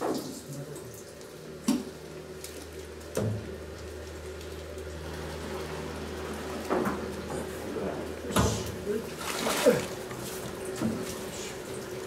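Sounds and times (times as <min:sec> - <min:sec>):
wet scooping: 0:09.1 - 0:10.4.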